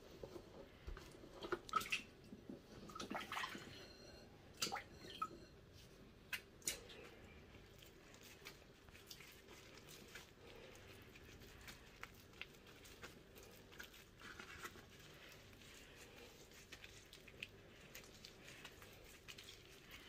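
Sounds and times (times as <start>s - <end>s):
corn husks crackling: 7.9s - 20.0s.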